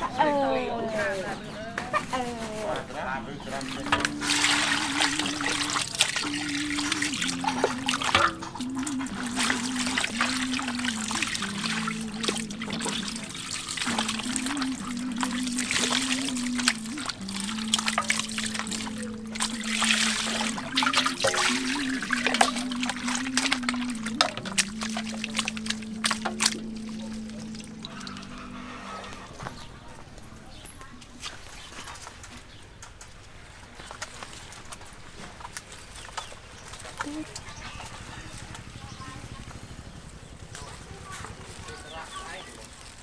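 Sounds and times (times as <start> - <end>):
water splashing and trickling: 2.2 - 43.0
steady wavering tone: 3.5 - 29.6.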